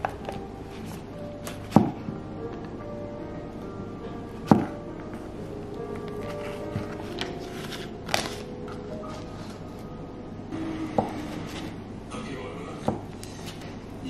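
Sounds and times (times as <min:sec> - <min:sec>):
foil wrapper rustling: 0:06.1 - 0:09.6.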